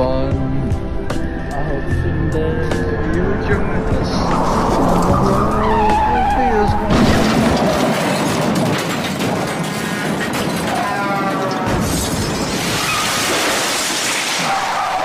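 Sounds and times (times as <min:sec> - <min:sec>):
music: 0:00.0 - 0:07.3
crashing and smashing clatter: 0:06.9 - 0:15.0.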